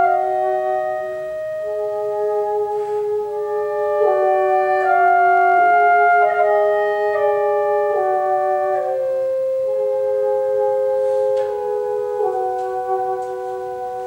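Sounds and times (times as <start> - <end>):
chamber ensemble slow held notes: 0.0 - 14.0.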